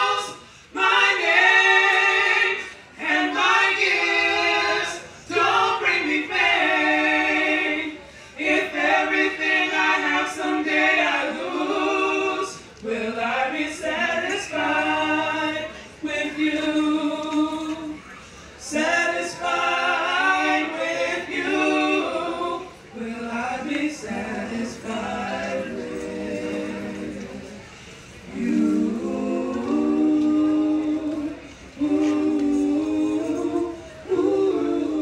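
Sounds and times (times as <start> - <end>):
group singing in harmony: 0.0 - 35.0.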